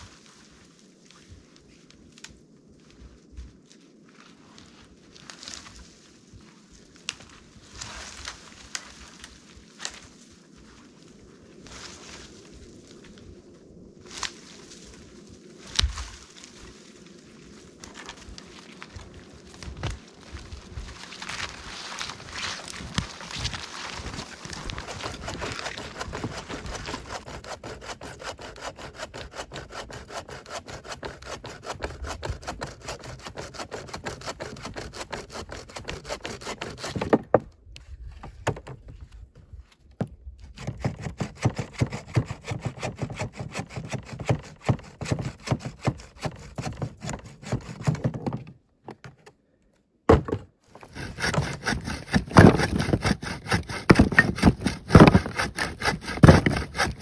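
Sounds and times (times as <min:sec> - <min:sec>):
hand saw cutting wood: 0:22.4 - 0:37.5, 0:38.5 - 0:38.8, 0:40.0 - 0:49.2, 0:50.1 - 0:57.0.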